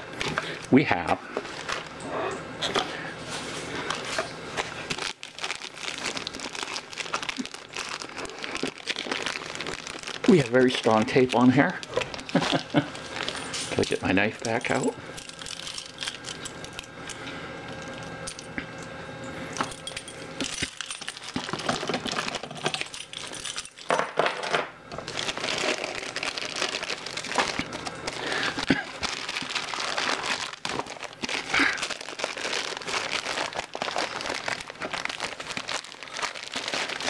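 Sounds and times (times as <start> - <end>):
plastic bag crinkling and tearing: 1.4 - 2.0, 3.7 - 16.9, 20.6 - 23.7, 24.9 - 37.0
knife and keys clinking: 13.2 - 16.9, 19.5 - 24.1.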